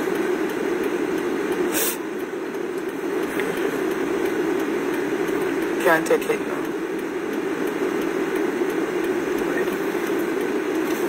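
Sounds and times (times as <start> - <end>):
vehicle cabin drone: 0.0 - 11.0
short hiss: 1.7 - 2.1.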